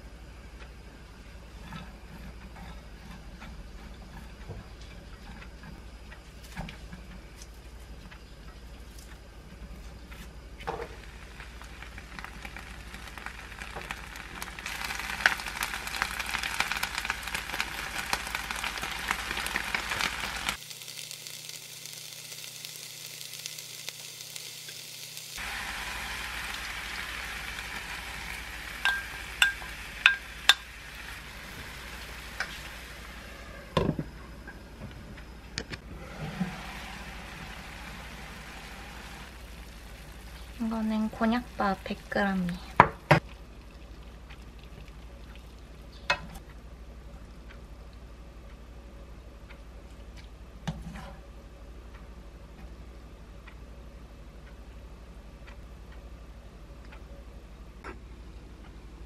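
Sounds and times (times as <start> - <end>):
food sizzling in a frying pan: 10.7 - 33.7, 36.1 - 42.6
utensil clinking on pan: 28.8 - 30.7.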